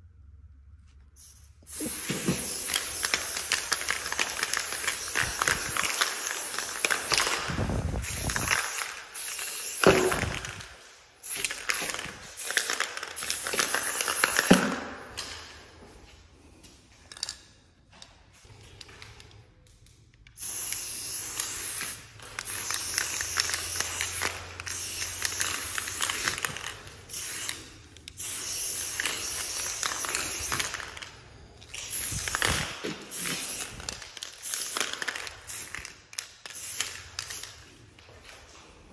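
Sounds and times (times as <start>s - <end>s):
spray paint can hissing: 1.2s - 14.6s, 20.4s - 31.1s, 31.7s - 37.6s.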